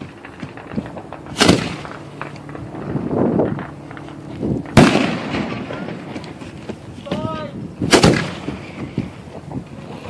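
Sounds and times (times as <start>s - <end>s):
fireworks boom: 0.0s - 6.2s
small fireworks pops: 0.0s - 7.3s.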